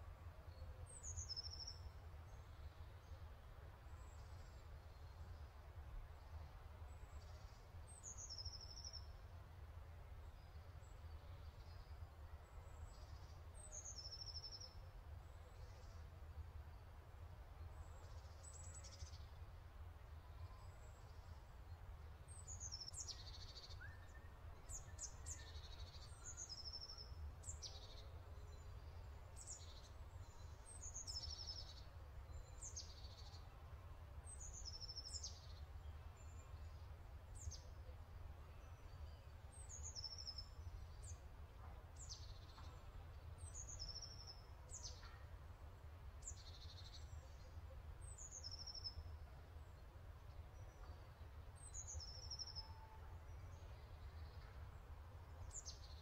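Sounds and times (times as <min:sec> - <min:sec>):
small birds chirping: 0:20.2 - 0:33.6, 0:34.2 - 0:37.8, 0:38.6 - 0:45.4, 0:46.2 - 0:56.0.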